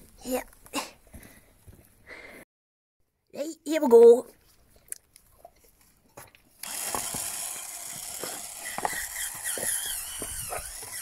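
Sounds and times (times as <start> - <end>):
spin scrubber motor whirring: 6.6 - 11.0.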